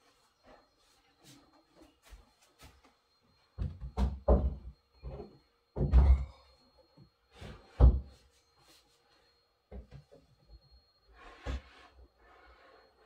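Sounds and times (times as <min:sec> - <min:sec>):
wooden shelf knocking and thumping: 0:03.6 - 0:05.2.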